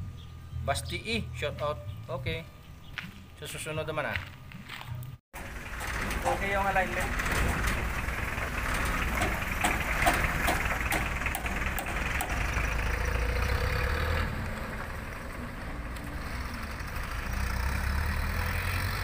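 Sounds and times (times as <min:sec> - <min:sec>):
truck engine rumbling: 0:05.3 - 0:19.0.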